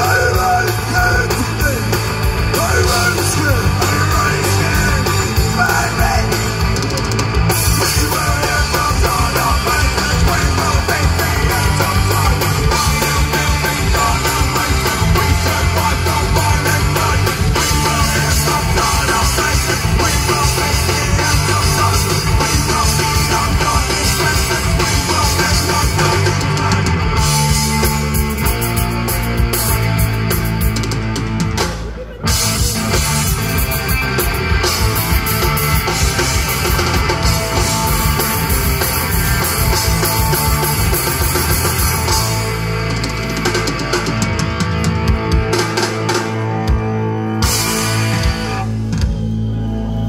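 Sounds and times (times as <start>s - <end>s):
drum kit: 0.0s - 49.7s
bass guitar: 0.0s - 50.0s
guitars: 0.0s - 50.0s.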